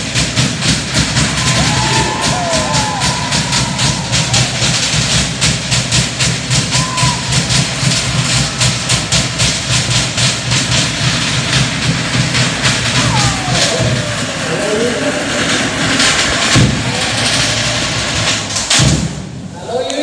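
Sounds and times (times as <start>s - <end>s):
fast log drumming: 0.0s - 19.2s
deep drum pulsing: 0.0s - 19.4s
sliding cries: 12.8s - 18.6s.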